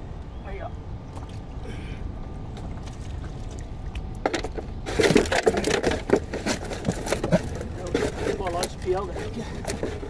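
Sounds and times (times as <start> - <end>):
wind and water rumble: 0.0 - 10.0
fishing gear knocking and scraping: 4.2 - 10.0.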